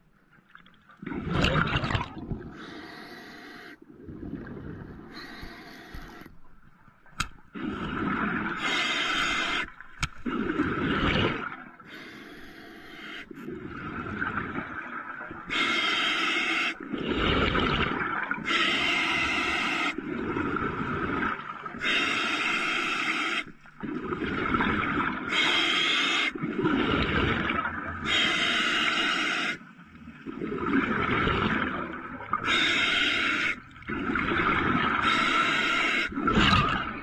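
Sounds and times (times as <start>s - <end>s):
bubbling exhalations: 1.0s - 2.6s, 16.8s - 22.0s, 26.3s - 27.9s, 33.7s - 37.0s
rushing inhalations: 5.1s - 6.3s, 11.9s - 13.5s.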